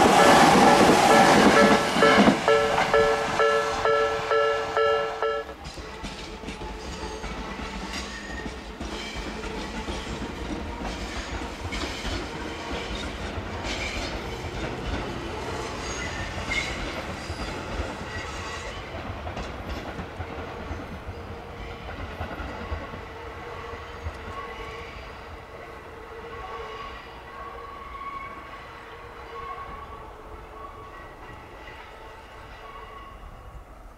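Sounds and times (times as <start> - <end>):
electric train rumbling by: 0.0 - 33.9
wheels clacking over rail joints: 5.6 - 23.0.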